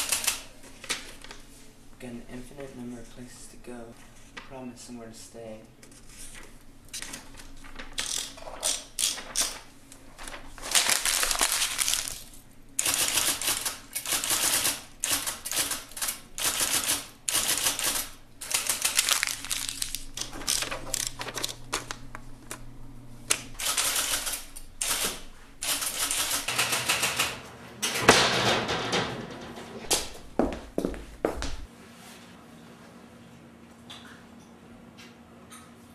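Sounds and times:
typewriter keystrokes: 0.0 - 0.5, 12.8 - 19.2, 23.3 - 27.4.

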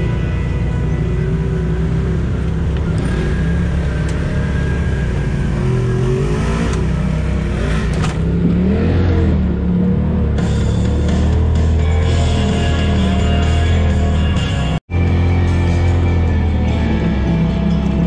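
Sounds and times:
utility vehicle engine revving: 0.0 - 18.0.

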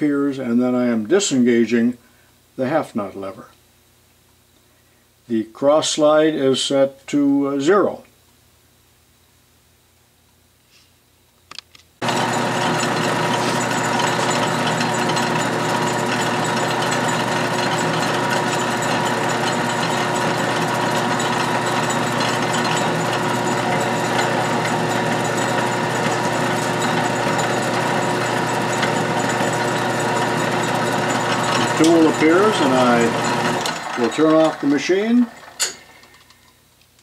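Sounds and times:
lathe running with hum and whine: 12.0 - 36.1.

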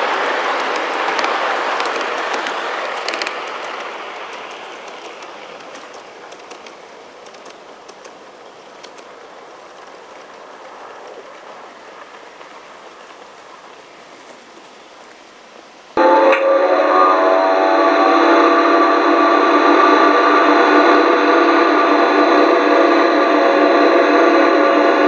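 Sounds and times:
model train wheels running: 0.0 - 15.2
faint steady hiss: 0.0 - 16.1
sharp clicks: 0.6 - 9.1.

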